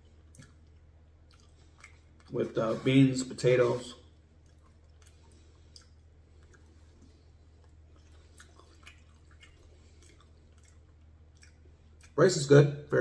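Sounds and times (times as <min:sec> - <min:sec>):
chewing: 0:00.0 - 0:03.3, 0:03.9 - 0:13.0.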